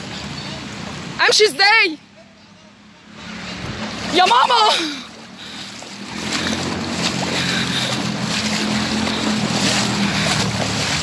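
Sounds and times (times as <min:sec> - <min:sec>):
flood water sloshing and splashing: 0:03.1 - 0:11.0.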